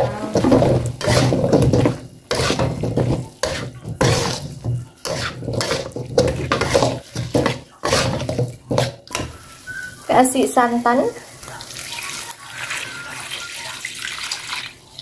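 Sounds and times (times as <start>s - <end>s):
metal spatula scraping wok: 0.0s - 9.4s.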